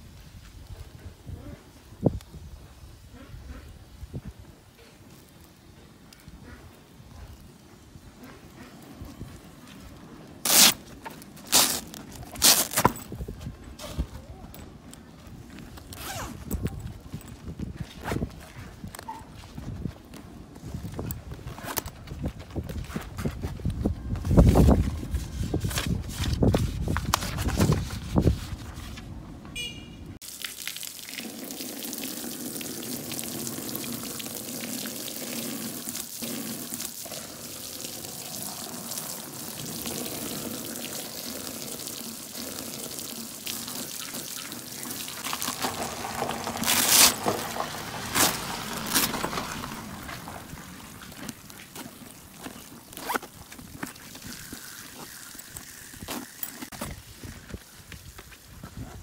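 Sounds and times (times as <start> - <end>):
water pouring onto a bag: 10.4 - 13.1, 30.2 - 57.5
water splashing onto concrete: 30.2 - 57.1.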